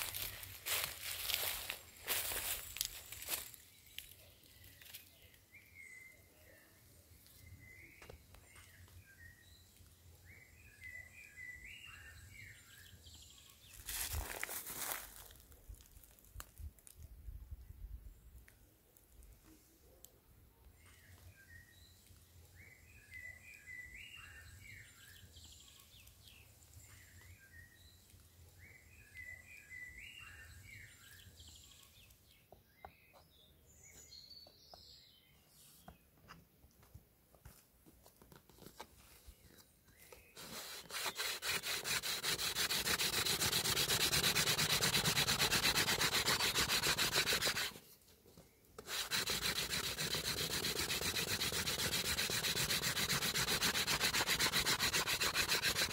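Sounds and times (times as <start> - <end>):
hand drill rubbing on wood: 40.4 - 47.8, 48.8 - 55.9.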